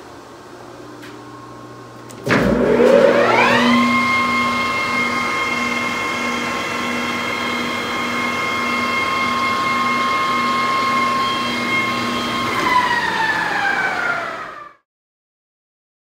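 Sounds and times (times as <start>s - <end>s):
lathe gear whine: 2.4s - 14.7s.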